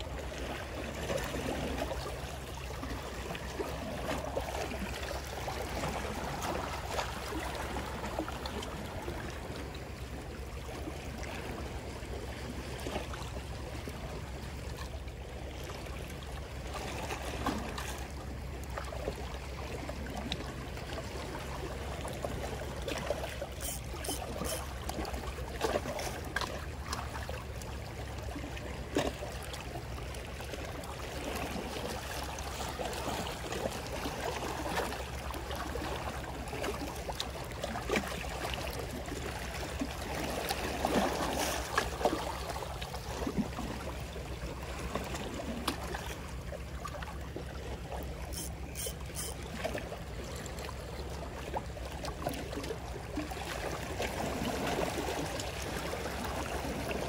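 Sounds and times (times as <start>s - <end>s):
waves lapping among rocks: 0.0s - 57.0s.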